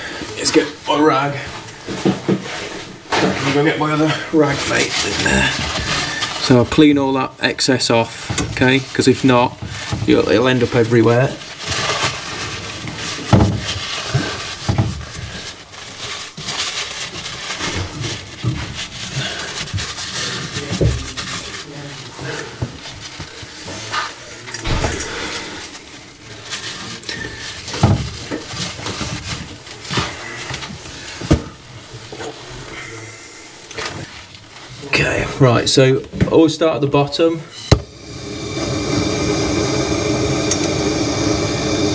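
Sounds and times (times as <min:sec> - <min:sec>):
rustling: 0:00.1 - 0:36.5
rag rubbing on copper pipe: 0:08.0 - 0:34.8.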